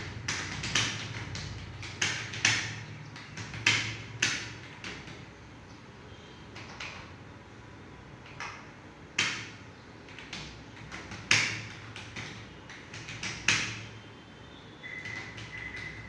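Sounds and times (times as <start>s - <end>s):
keyboard keys clicking: 0.1s - 5.2s, 6.5s - 7.1s, 10.1s - 13.8s, 14.9s - 16.0s.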